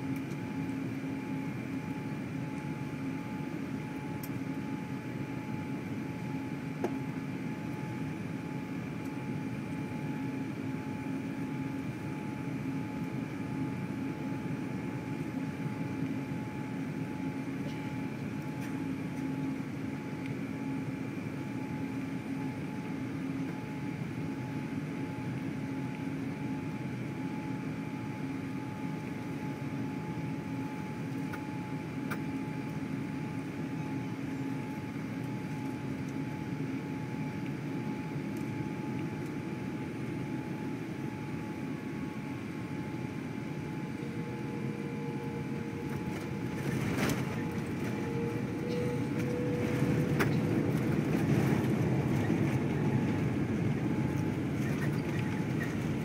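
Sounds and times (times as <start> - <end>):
jet engines running: 0.0 - 56.0
steady low hum: 0.0 - 56.0
aircraft cabin airflow rush: 0.1 - 56.0
faint higher tone: 48.2 - 49.7.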